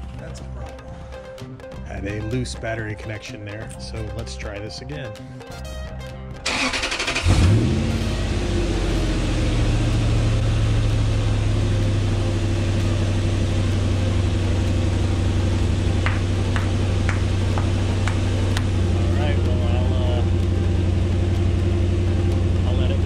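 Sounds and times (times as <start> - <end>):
car engine idling: 6.4 - 23.0.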